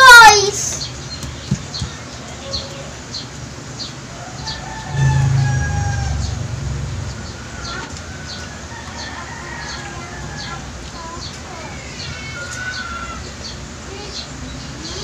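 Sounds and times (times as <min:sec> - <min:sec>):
low hum: 0:04.7 - 0:08.2.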